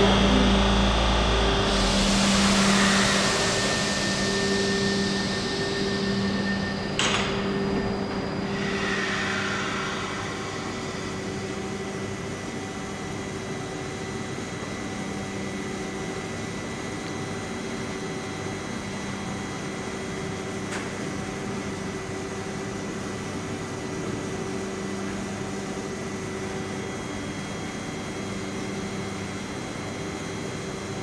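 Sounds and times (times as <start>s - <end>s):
whining tones: 0.0s - 11.8s
electric train humming: 0.0s - 12.0s.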